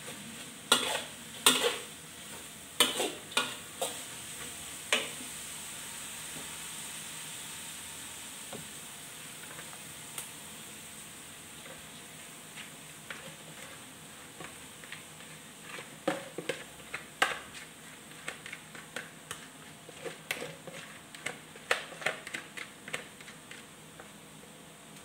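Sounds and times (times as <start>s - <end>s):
faint steady hiss: 0.0s - 20.2s.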